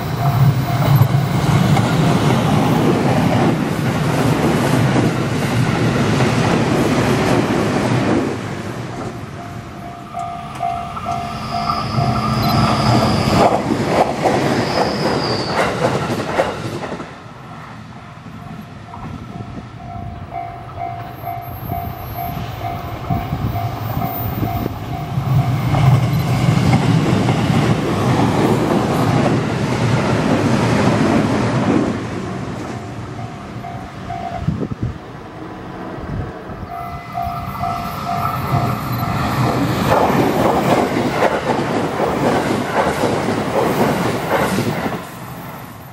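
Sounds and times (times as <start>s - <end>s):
level crossing warning bell: 0.0s - 1.6s, 8.9s - 13.1s, 18.5s - 26.3s, 32.8s - 34.5s, 36.7s - 39.5s
train wheels clattering on rails: 0.0s - 9.3s, 10.0s - 17.2s, 20.7s - 32.0s, 37.3s - 45.9s.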